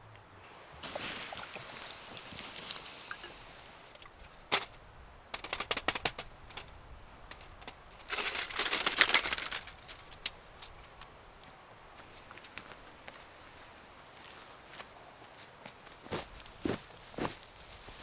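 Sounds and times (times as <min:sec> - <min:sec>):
metal scraping and rustling: 0:07.3 - 0:11.0.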